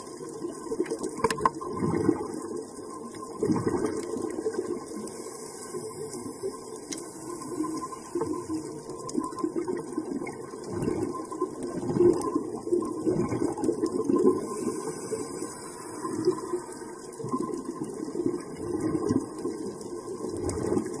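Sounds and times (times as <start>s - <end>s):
muffled underwater rush: 0.0s - 21.0s
faint clicks: 0.3s - 1.7s, 3.8s - 9.5s.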